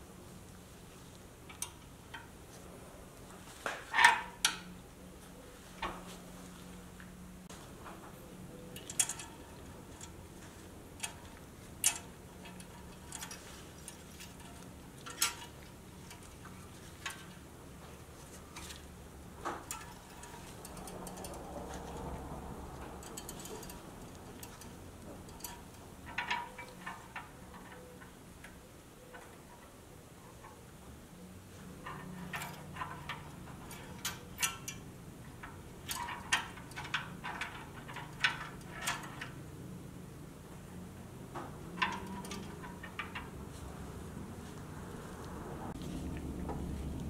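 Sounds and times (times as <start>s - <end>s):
low steady hum: 0.0s - 47.0s
small metal parts clicking: 8.7s - 10.2s, 10.9s - 17.5s, 19.5s - 29.7s, 31.8s - 39.4s, 41.7s - 43.5s.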